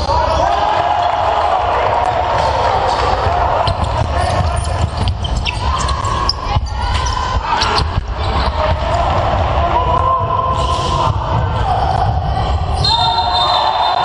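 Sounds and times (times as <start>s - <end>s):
sneakers squeaking: 0.0s - 0.6s, 2.4s - 9.0s
murmur of spectators: 0.0s - 14.0s.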